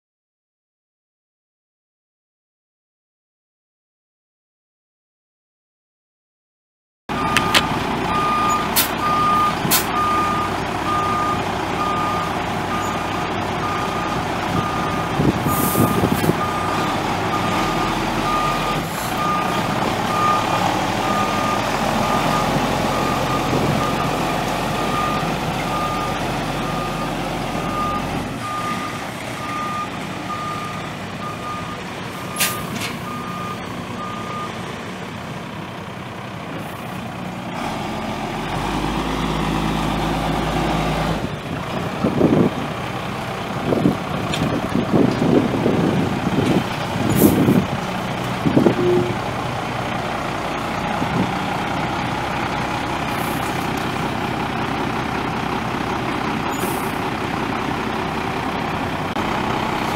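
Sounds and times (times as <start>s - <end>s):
truck backup alarm beeping: 7.1s - 34.8s, 43.6s - 59.9s
diesel truck engine running: 7.1s - 59.9s.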